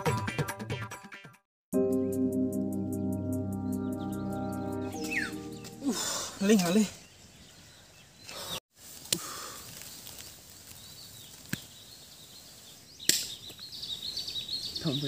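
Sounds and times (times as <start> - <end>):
high warbling chirping: 2.0 - 7.0.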